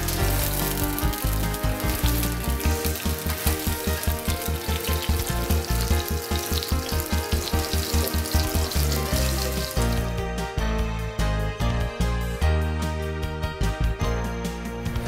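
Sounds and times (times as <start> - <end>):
chicken sizzling in oil: 0.0 - 10.1
background music with steady beat: 0.0 - 15.0.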